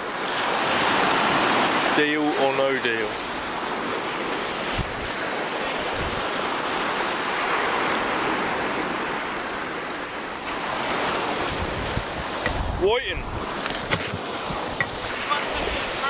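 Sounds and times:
small waves breaking on beach: 0:00.0 - 0:16.0.

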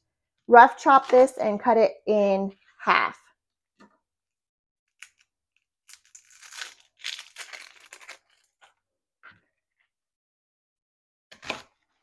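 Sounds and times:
onion skin peeling: 0:05.0 - 0:08.6.

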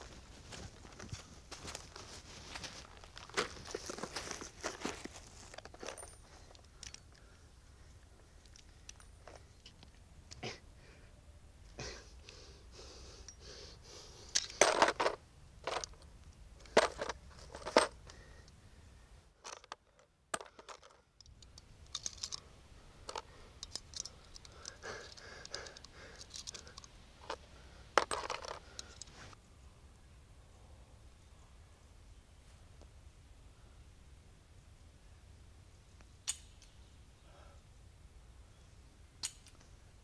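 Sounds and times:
pistol metallic clicks: 0:36.2 - 0:36.8, 0:39.2 - 0:39.7.

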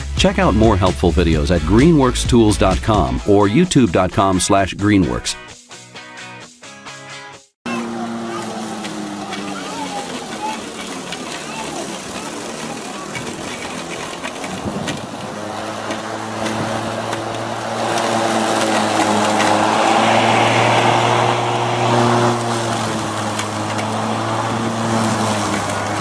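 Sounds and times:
electric lawn mower motor hum: 0:07.7 - 0:26.0
mower blade cutting grass: 0:07.7 - 0:26.0.

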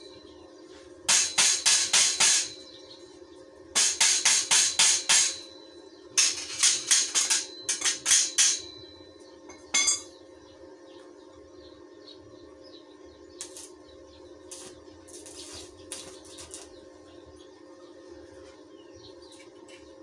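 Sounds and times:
steady low hum: 0:00.0 - 0:20.0
metal tubes clinking: 0:06.2 - 0:08.9, 0:09.5 - 0:10.1.

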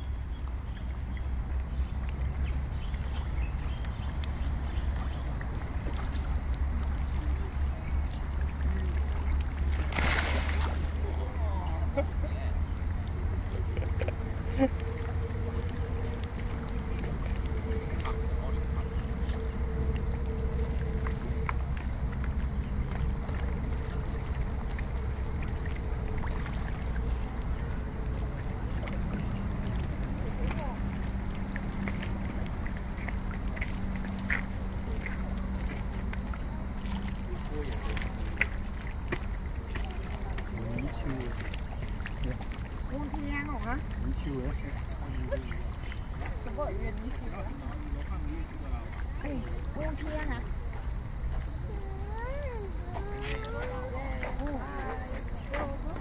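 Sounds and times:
low rumble: 0:00.0 - 0:40.6
fish splashing and slurping: 0:00.0 - 0:56.0.

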